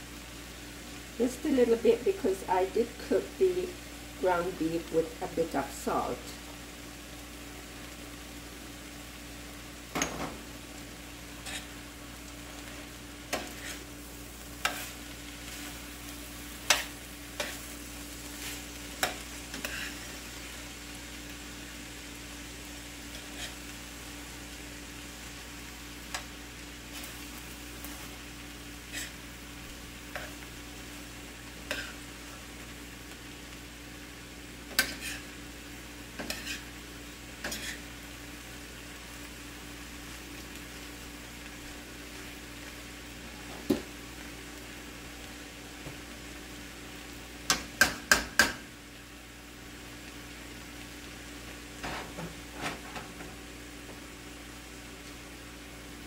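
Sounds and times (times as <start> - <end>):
food sizzling: 0.0 - 56.0
metal spoon scraping frying pan: 11.4 - 11.7, 13.3 - 13.9, 18.4 - 20.0, 34.7 - 35.3, 36.2 - 36.7, 37.4 - 37.8.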